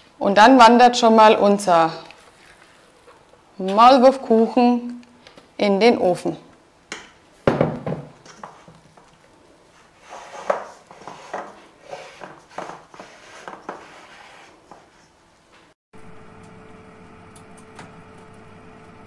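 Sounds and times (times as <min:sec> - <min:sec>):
spatula scraping batter in metal pan: 0:09.8 - 0:15.0.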